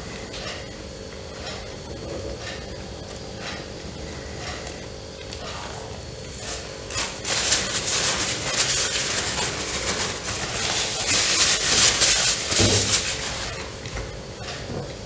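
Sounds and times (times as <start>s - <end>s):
paper napkin crinkling: 6.9s - 13.7s.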